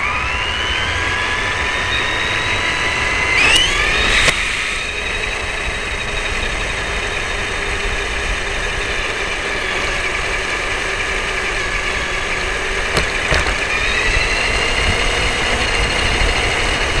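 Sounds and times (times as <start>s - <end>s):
toy car electric motor whining: 0.0s - 17.0s
tyres rumbling on asphalt: 1.0s - 17.0s
knocks: 12.9s - 13.7s.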